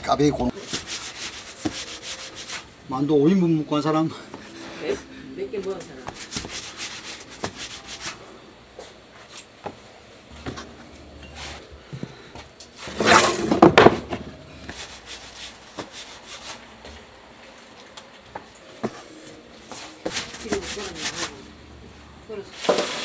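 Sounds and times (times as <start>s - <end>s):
hands rubbing dough: 0.5s - 2.8s, 6.0s - 9.8s, 14.7s - 17.1s, 18.8s - 21.5s
scraping rustle: 12.7s - 17.9s, 18.9s - 21.5s.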